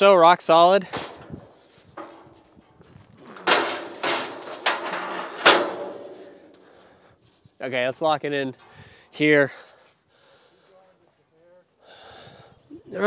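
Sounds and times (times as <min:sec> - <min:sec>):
metal scrapes and clanks: 0:01.0 - 0:06.9.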